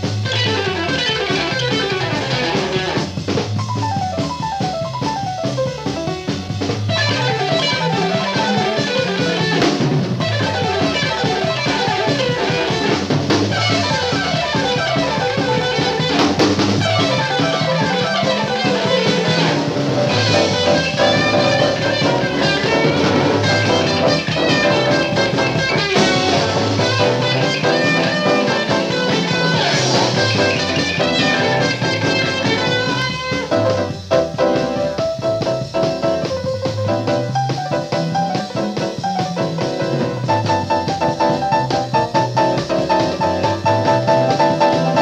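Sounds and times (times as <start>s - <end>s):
drum kit: 0.0s - 45.0s
electric guitar runs: 0.0s - 45.0s.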